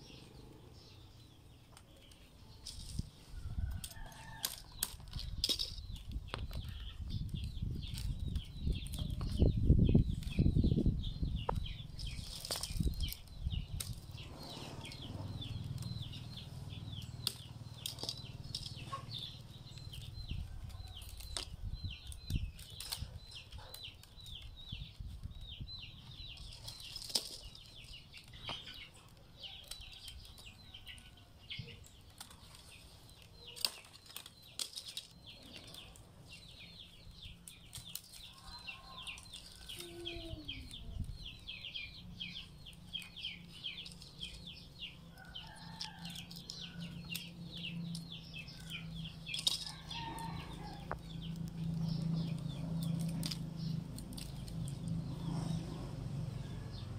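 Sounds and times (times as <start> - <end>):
birds chirping: 0.0 - 56.9
rattan strands rustling and clicking: 2.0 - 6.3, 12.0 - 24.4, 26.4 - 30.6, 32.0 - 36.6, 42.4 - 55.4.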